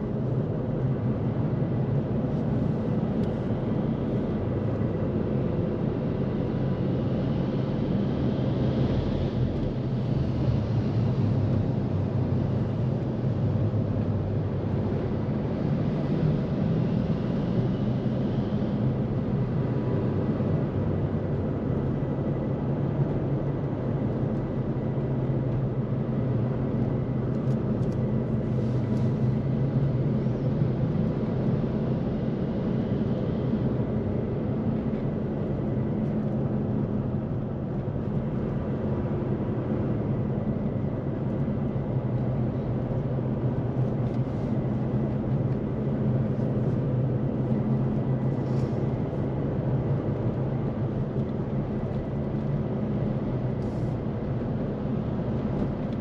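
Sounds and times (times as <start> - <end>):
vehicle engine and road hum: 0.0 - 56.0.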